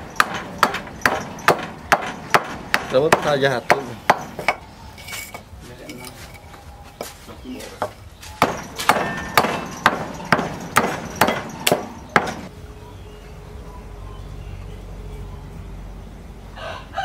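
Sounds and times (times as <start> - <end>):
hand blade chopping wood: 8.4 - 12.5.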